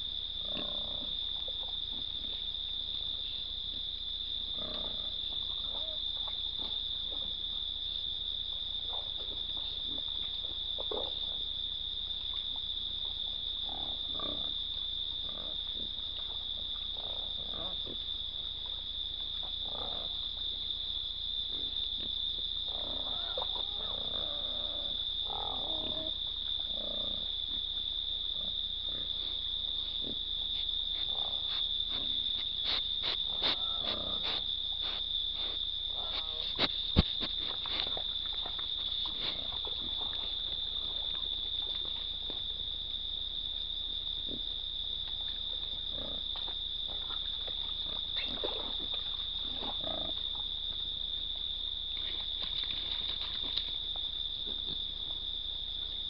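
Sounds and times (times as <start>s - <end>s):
high insect chorus: 0.0s - 56.0s
hogs grunting and snuffling: 0.0s - 56.0s
knocks and scrapes on camera: 36.2s - 37.9s.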